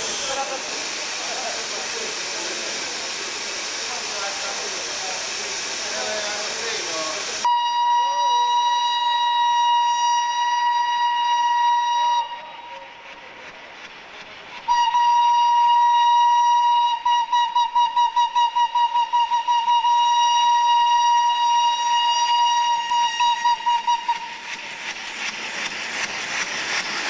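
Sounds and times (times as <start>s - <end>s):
locomotive steam exhaust hiss: 0.0s - 27.0s
steam whistle blast: 7.4s - 13.0s, 14.7s - 24.4s.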